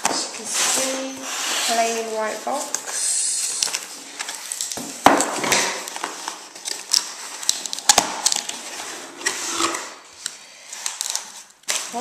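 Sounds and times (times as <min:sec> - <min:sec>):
cardboard scraping and rubbing: 0:00.3 - 0:02.7.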